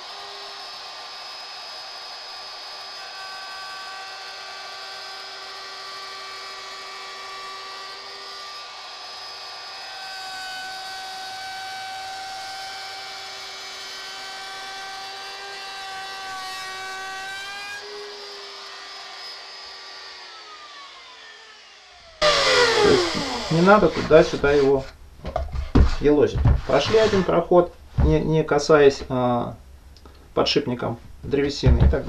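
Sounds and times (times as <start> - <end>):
router motor whine: 0.0 - 24.7.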